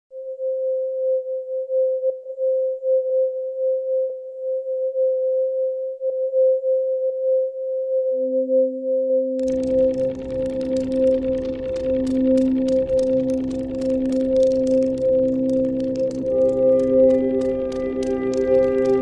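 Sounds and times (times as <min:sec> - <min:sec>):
lower electronic tone: 0:00.1 - 0:19.0
pure electronic tone: 0:00.2 - 0:19.0
faint clicks: 0:09.4 - 0:19.0.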